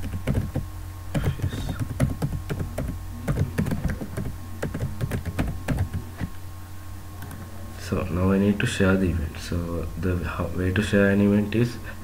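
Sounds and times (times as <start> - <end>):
typing on computer keyboard: 0.0 - 0.6, 1.2 - 6.0
steady low hum: 0.0 - 12.0.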